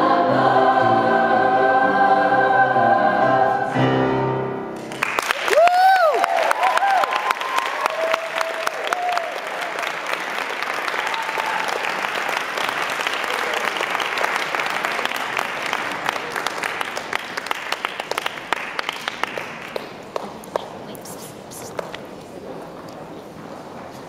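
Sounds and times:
audience applauding: 4.8s - 20.8s.

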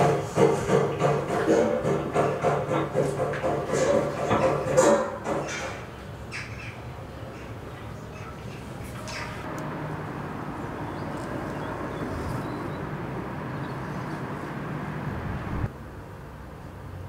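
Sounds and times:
low outdoor rumble: 5.2s - 17.0s.

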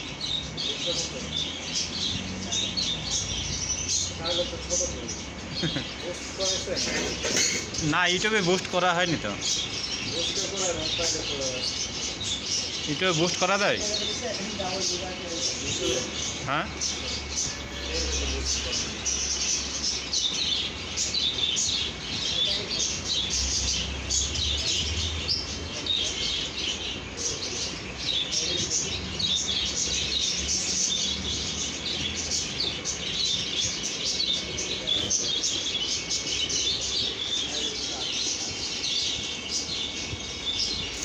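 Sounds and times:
small birds chirping: 0.0s - 41.0s.

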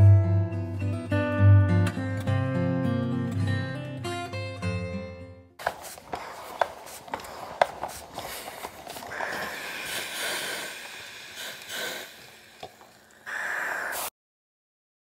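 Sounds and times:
steam iron hissing: 5.6s - 14.1s.

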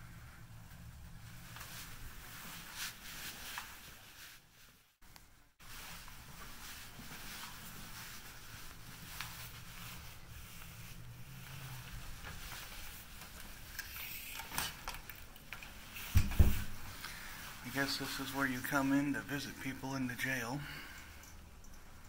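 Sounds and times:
low steady hum: 0.0s - 4.4s
footsteps: 5.6s - 13.7s.

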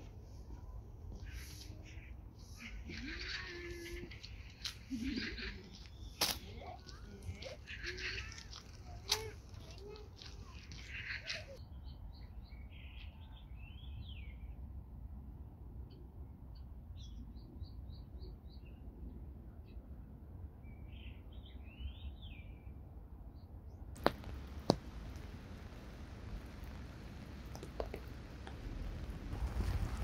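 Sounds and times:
songbirds chirping: 0.1s - 14.7s, 15.8s - 28.7s
low wind rumble: 22.0s - 30.0s
rain on an umbrella: 24.0s - 30.0s.

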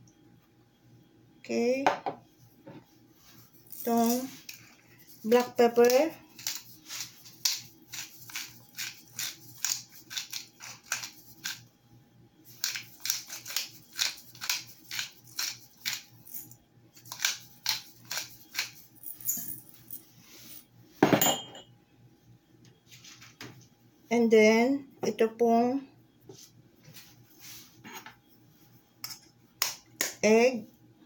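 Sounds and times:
pepper grinder crunching: 3.8s - 11.6s, 12.5s - 16.1s, 17.0s - 18.9s.

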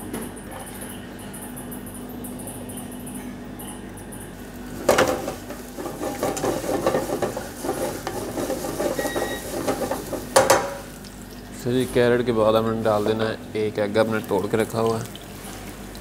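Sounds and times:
carrot frying in oil: 4.7s - 11.5s, 13.7s - 16.0s
spatula scraping a pan: 4.9s - 10.5s.

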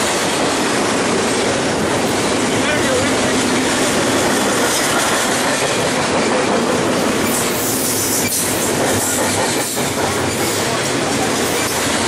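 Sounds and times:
train wheels rumbling on rail: 0.0s - 12.0s.

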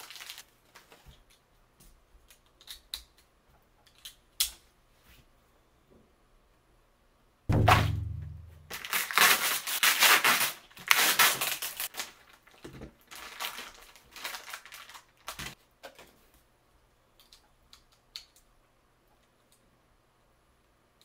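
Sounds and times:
plastic bags crinkling: 0.0s - 0.9s, 8.7s - 15.6s
deep booming hit: 7.5s - 8.9s.

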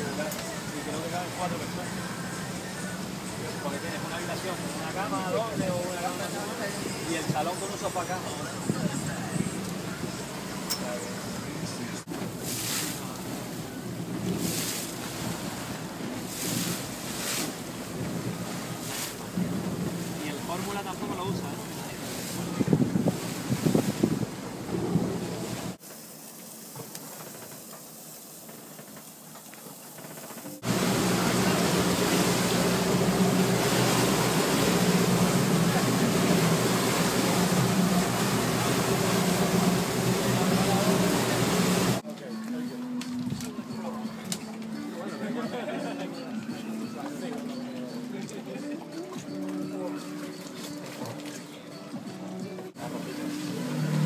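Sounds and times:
boat engine humming: 0.0s - 42.0s, 47.1s - 54.0s
water rushing along hull: 0.0s - 42.0s, 47.0s - 54.0s
wind buffeting microphone: 8.4s - 10.1s, 21.7s - 25.8s.

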